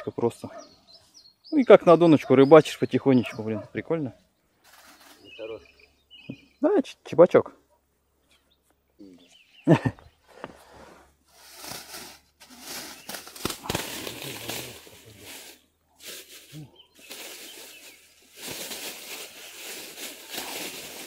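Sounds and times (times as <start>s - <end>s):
plastic bag rustling and crinkling: 11.3s - 21.0s.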